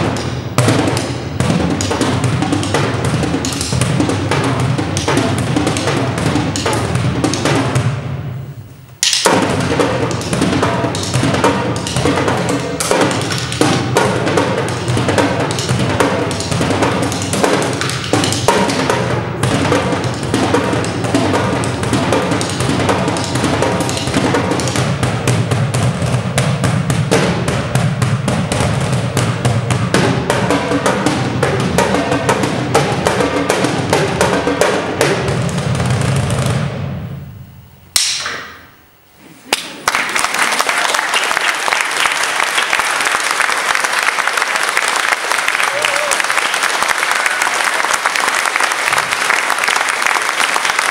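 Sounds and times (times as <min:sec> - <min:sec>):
fast drum kit playing: 0:00.0 - 0:37.1.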